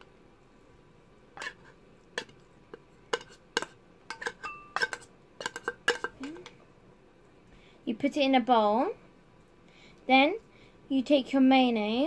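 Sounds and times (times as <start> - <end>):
metal spoon clinking on can and bowl: 3.1 - 6.5.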